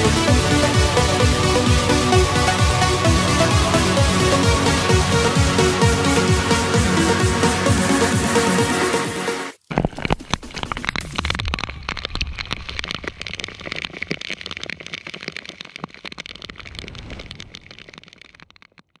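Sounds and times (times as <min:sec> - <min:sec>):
underwater crackling and clicking: 0:09.6 - 0:19.0
moving water rumble: 0:10.7 - 0:18.7.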